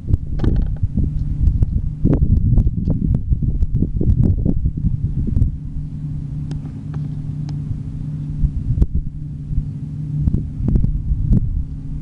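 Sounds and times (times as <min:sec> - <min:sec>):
combine harvester droning: 0:00.0 - 0:12.0.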